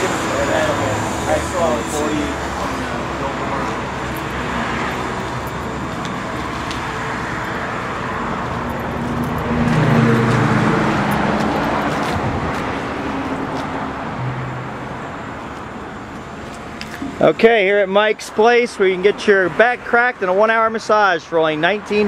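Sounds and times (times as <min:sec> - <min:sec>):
vehicle engine driving past: 0:00.0 - 0:15.5
cars passing: 0:00.0 - 0:22.0.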